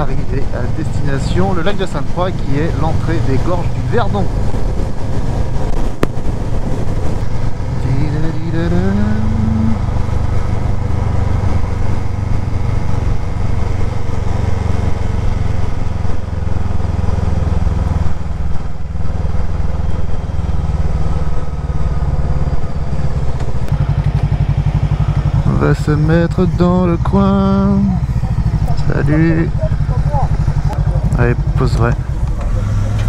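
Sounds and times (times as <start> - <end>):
motorcycle engine accelerating: 0.0 - 33.0.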